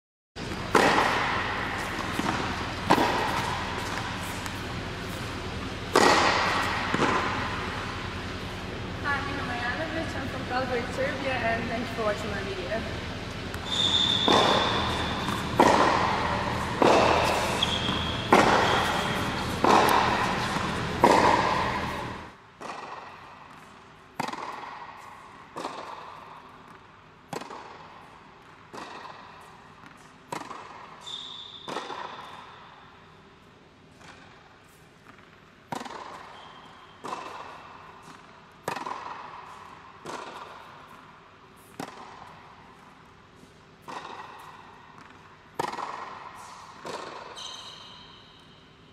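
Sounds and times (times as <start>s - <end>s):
tennis racket strikes: 0.4s - 8.7s, 13.4s - 28.1s, 28.7s - 31.0s, 33.9s - 41.0s, 41.6s - 48.4s
tennis ball bounces: 0.4s - 10.1s, 13.2s - 31.0s, 35.0s - 42.9s, 43.8s - 47.7s
low hum: 0.4s - 22.4s
shoe squeaks: 13.6s - 15.6s, 16.3s - 19.6s, 31.0s - 32.6s, 36.3s - 37.0s, 47.3s - 48.7s.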